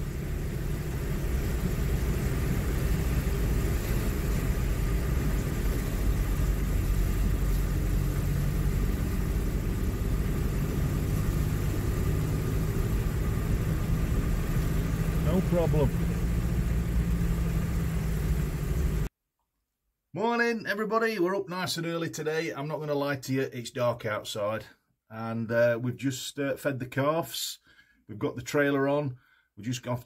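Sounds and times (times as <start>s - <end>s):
vehicle engine running: 0.0s - 19.1s
water washing against vehicle: 0.0s - 19.1s.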